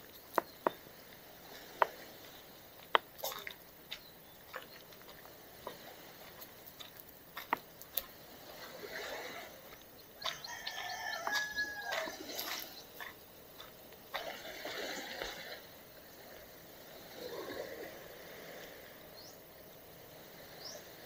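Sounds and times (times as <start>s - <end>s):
rooster crowing: 10.2s - 12.6s.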